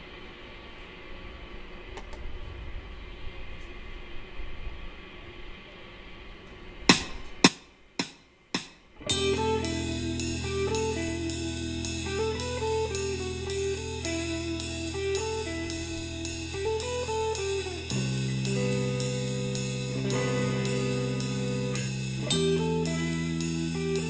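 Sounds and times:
loud sharp hits: 6.9s - 9.4s
steady drum beat: 6.9s - 24.0s
electric guitar riff: 9.0s - 24.0s
held bass note: 9.0s - 24.0s
low hum: 9.0s - 24.0s.

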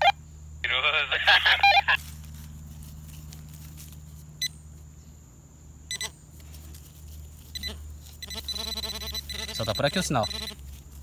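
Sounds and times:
metal detector beeping: 5.9s - 6.1s, 7.5s - 10.6s.

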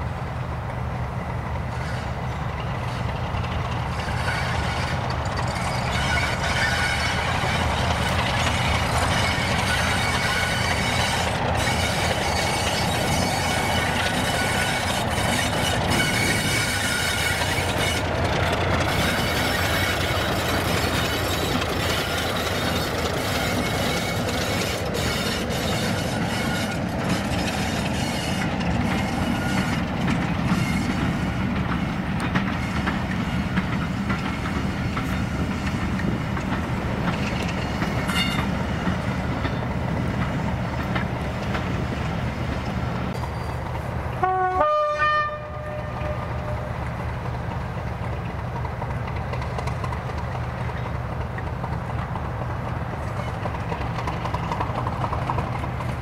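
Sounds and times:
diesel locomotive engine: 0.0s - 56.0s
two-note train horn: 44.2s - 46.8s.

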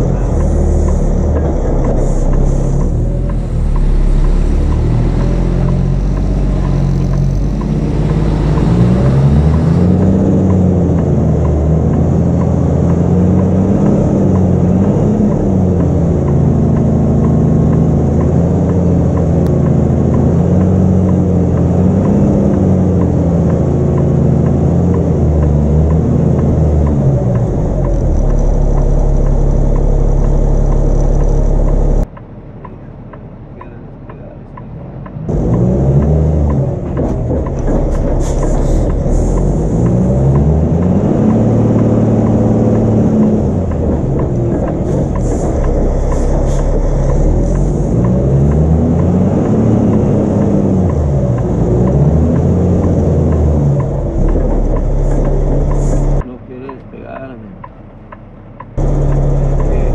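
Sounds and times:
diesel truck engine revving: 0.0s - 59.9s.

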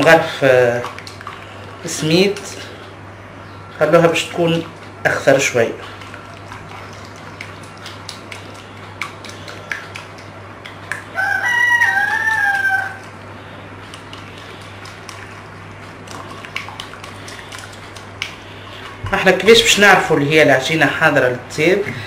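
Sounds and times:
whisk tapping ceramic bowl: 5.9s - 11.2s, 13.9s - 20.0s
rooster crowing: 11.1s - 13.1s.

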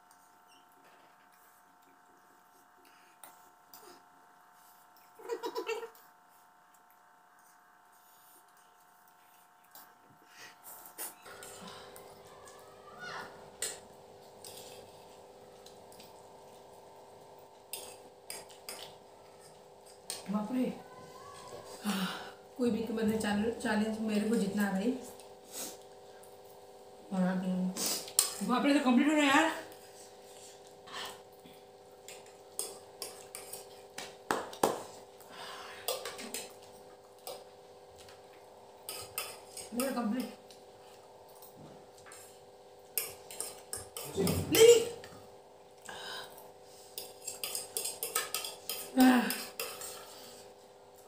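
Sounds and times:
faint steady hum: 0.0s - 51.0s
cutlery clicking against plates: 43.0s - 44.4s, 47.0s - 50.1s.

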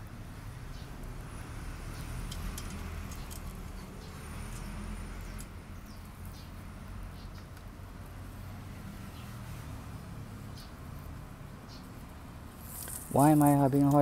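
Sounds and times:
light clicks and taps of metal guard: 2.2s - 5.6s.

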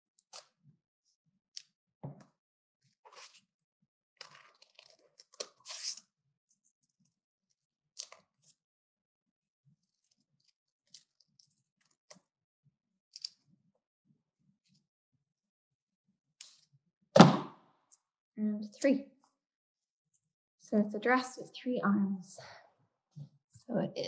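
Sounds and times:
paper crinkling: 4.2s - 6.0s.

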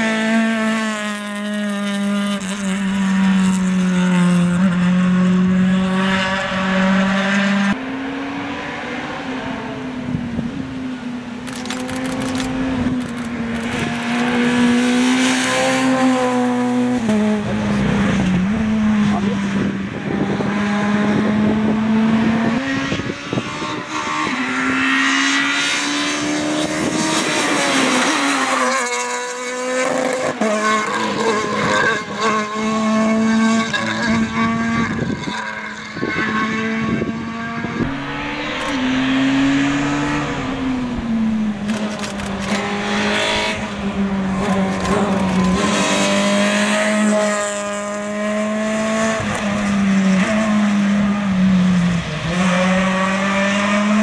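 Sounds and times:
rally car engines at high revs: 0.0s - 54.0s.

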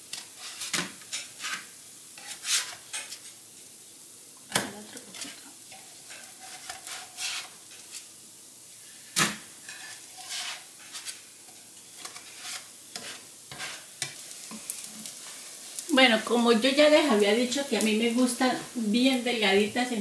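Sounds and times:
food sizzling in a frying pan: 0.0s - 20.0s
spatula clicking and scraping: 5.1s - 8.1s, 9.7s - 11.3s, 12.0s - 15.2s.

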